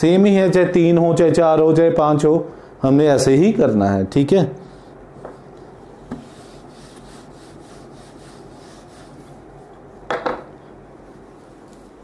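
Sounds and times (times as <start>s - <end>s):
duster rubbing on whiteboard: 4.6s - 9.9s.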